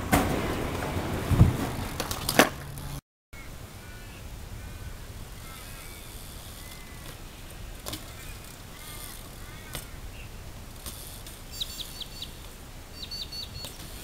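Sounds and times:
bike landing thump: 0:00.0 - 0:03.0, 0:07.8 - 0:10.0
birds chirping faintly: 0:03.4 - 0:14.0.

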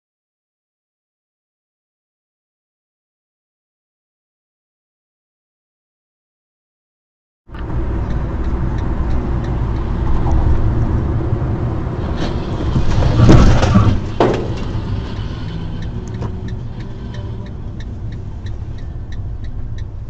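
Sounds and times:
car road and engine rumble: 0:07.5 - 0:20.0
vehicle crash impacts: 0:12.1 - 0:15.5.

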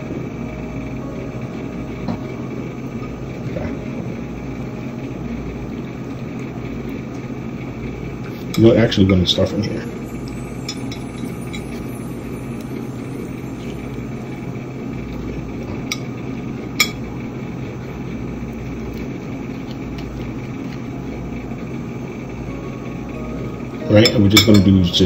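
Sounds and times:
steady low hum: 0:00.0 - 0:25.0
metal spoon clinking on ceramic plate: 0:24.0 - 0:24.7.

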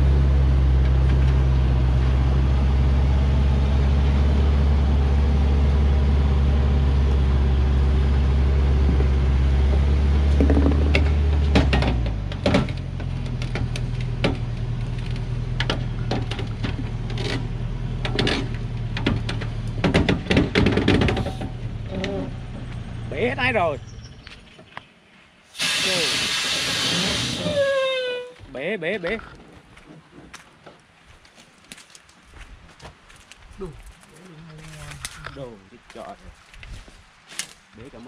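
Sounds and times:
truck diesel engine running: 0:00.0 - 0:24.1
sharp clicks and crunches: 0:32.8 - 0:37.8.

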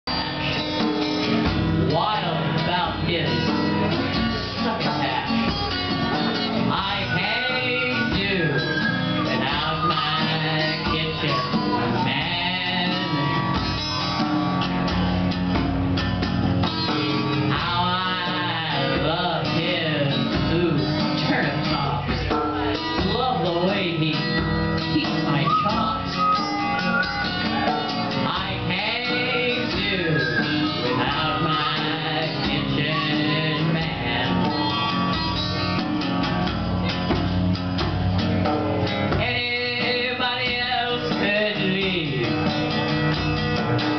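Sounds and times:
acoustic guitar: 0:00.0 - 0:43.9
person singing: 0:06.4 - 0:14.1, 0:17.5 - 0:22.1, 0:23.0 - 0:35.8, 0:39.1 - 0:42.4
hand drum: 0:24.1 - 0:43.9.

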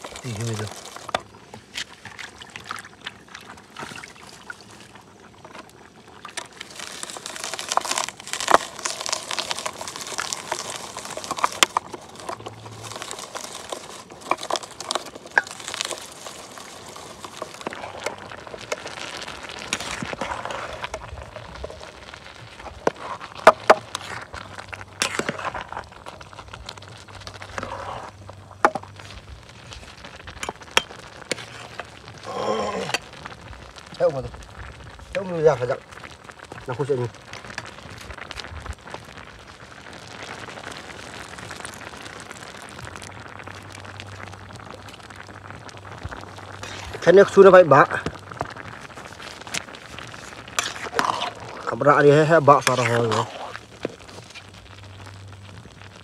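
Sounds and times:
rustling: 0:00.0 - 0:02.8, 0:05.4 - 0:56.0
vegetable chopper clicking and crunching: 0:06.7 - 0:21.0.

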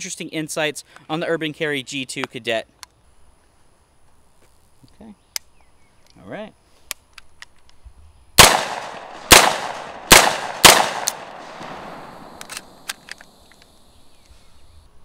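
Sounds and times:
pistol shots with echo: 0:08.4 - 0:12.9.

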